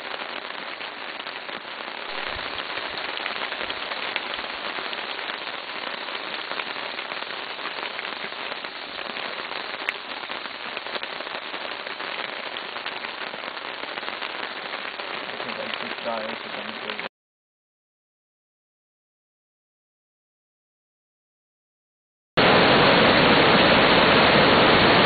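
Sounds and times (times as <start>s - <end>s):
rain pattering: 0.0s - 17.1s.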